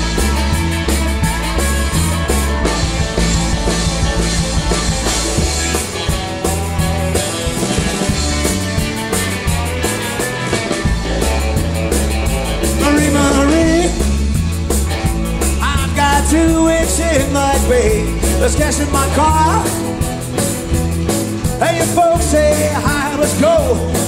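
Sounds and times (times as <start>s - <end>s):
electric guitar solo: 0.0s - 14.2s
bass guitar: 0.0s - 24.0s
drums: 0.0s - 24.0s.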